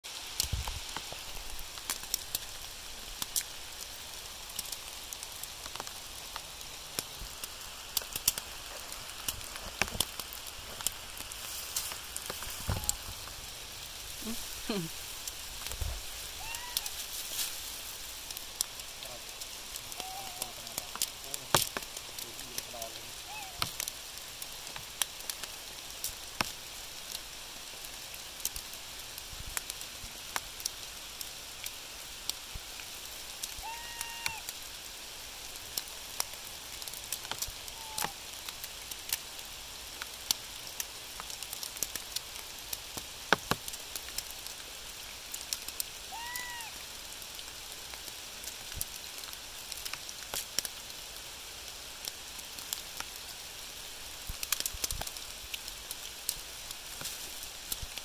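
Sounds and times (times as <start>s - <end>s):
raindrops tapping close by: 0.0s - 58.0s
steady rain hissing: 0.0s - 58.0s.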